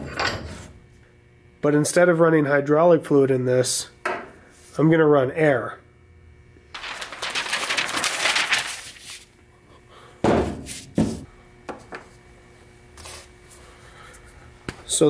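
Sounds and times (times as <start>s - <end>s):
stiff paper crinkling: 6.8s - 9.3s.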